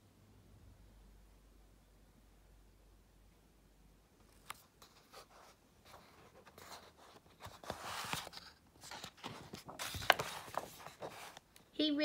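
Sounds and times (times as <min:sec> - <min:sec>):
page turning rustle: 0:04.2 - 0:11.5.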